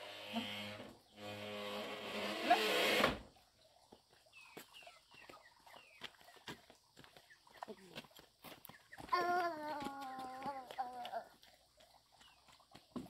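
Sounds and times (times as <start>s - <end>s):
sliding door scraping: 0.0s - 3.3s.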